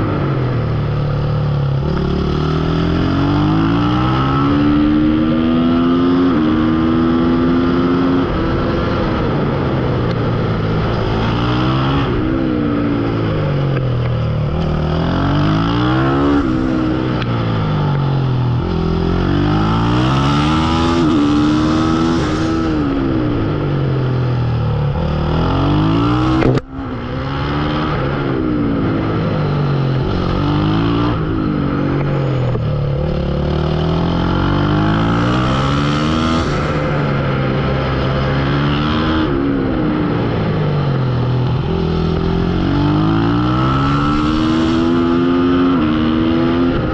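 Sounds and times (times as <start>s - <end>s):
motorcycle engine accelerating: 0.0s - 46.9s.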